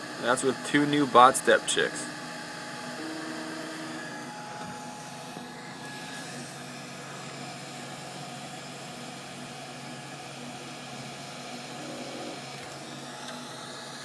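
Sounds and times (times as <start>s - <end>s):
cooling fan rushing: 0.0s - 14.0s
stepper motors humming: 0.2s - 7.5s.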